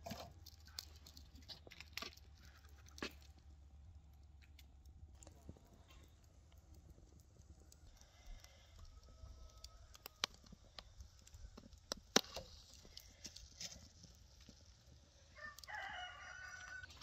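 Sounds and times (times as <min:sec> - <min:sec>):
embers crackling and popping: 0:00.0 - 0:17.0.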